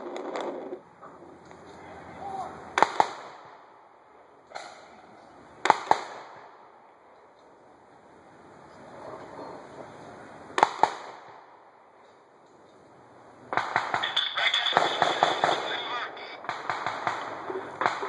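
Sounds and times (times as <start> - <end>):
gunshots with echo: 2.7 - 3.8, 5.6 - 6.8, 10.6 - 11.6, 13.5 - 18.0.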